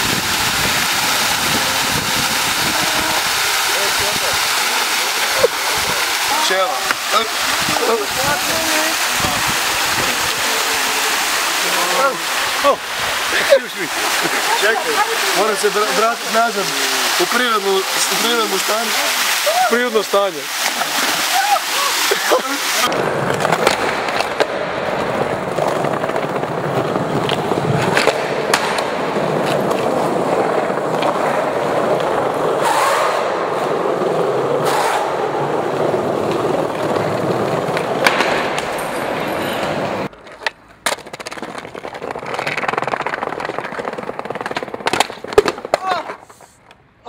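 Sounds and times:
skateboard wheels rolling: 0.0s - 19.8s, 20.5s - 46.8s
skateboard tail clacks: 22.9s - 46.8s.

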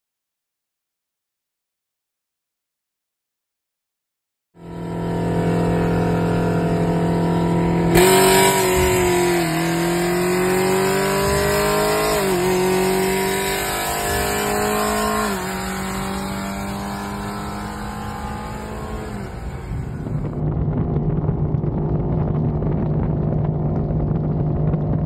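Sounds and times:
car engine accelerating: 4.6s - 25.0s.

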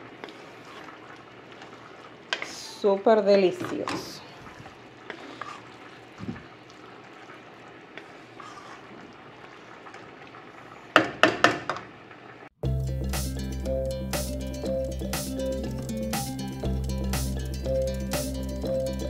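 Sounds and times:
wooden spoon stirring stew: 0.0s - 11.9s
music: 12.6s - 19.0s.

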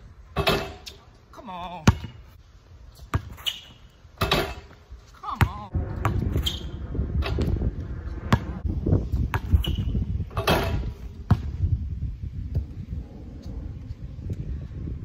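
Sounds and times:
hoop rim and backboard clattering: 0.3s - 1.0s, 3.0s - 4.8s, 9.3s - 11.5s
basketball bouncing on concrete: 1.8s - 2.2s, 3.1s - 3.5s, 4.2s - 4.8s, 5.4s - 6.6s, 8.3s - 8.6s, 9.2s - 11.7s.

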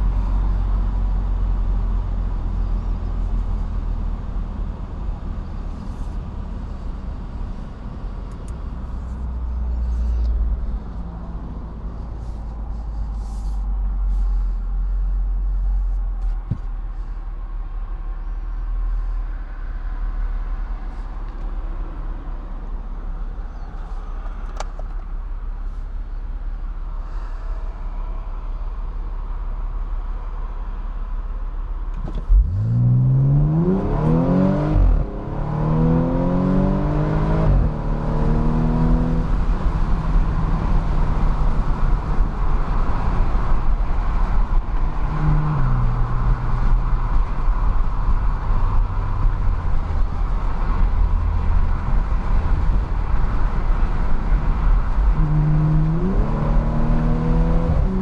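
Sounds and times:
car engine accelerating: 0.0s - 17.2s, 31.9s - 58.0s
wind noise: 33.6s - 58.0s.

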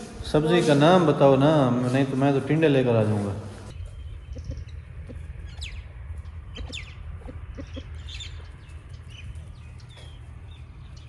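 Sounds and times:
steady low rumble: 3.6s - 11.0s
chickens clucking: 4.2s - 5.8s, 6.5s - 8.4s.

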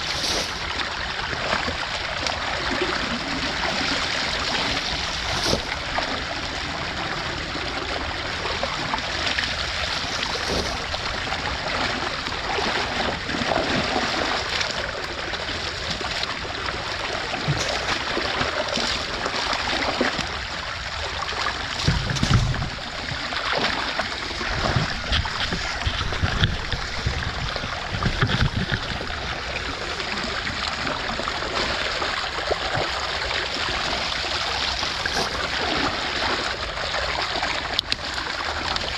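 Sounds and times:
creek water rushing and gurgling: 0.0s - 38.9s
splashing debris: 21.6s - 29.0s
low thumps: 21.8s - 23.2s.

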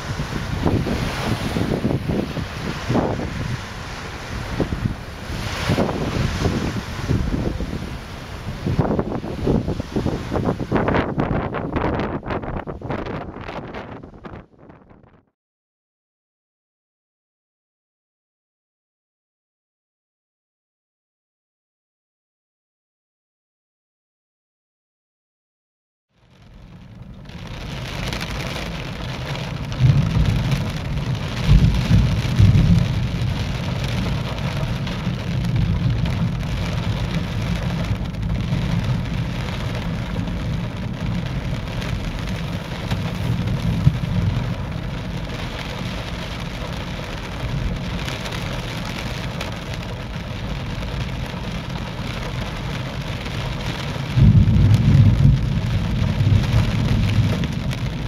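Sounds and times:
rain falling: 0.0s - 14.4s, 26.2s - 58.0s
thunder rumbling: 0.0s - 14.4s, 26.8s - 58.0s.

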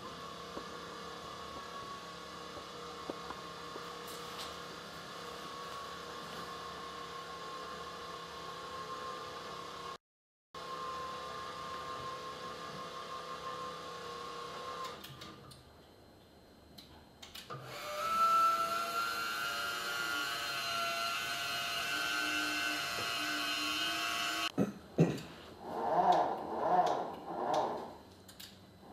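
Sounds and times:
electric motor whine: 0.0s - 10.0s, 10.6s - 15.0s, 17.5s - 24.5s.

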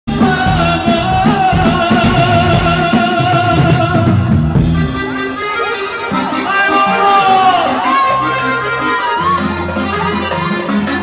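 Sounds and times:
man singing into microphone: 0.1s - 4.6s
drum kit: 0.1s - 11.0s
electric guitar: 0.1s - 11.0s.

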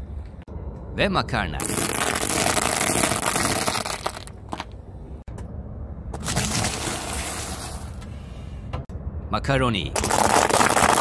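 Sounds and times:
tyre crunching dry pasta: 1.6s - 4.3s, 10.0s - 11.0s
tyre crunching wafer biscuit: 10.0s - 11.0s.

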